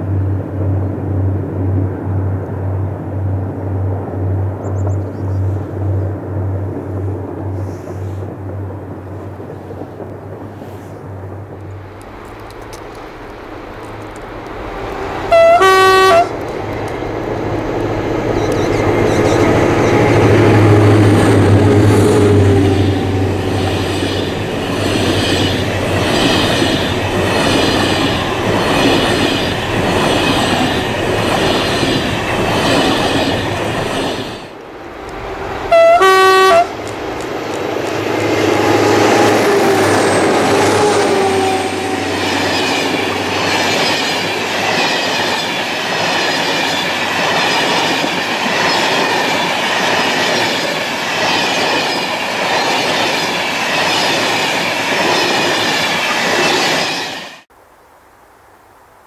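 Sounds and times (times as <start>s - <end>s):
train wheels clattering on rails: 4.7s - 35.8s, 36.6s - 57.5s
train horn blast: 14.9s - 16.5s, 34.8s - 42.6s.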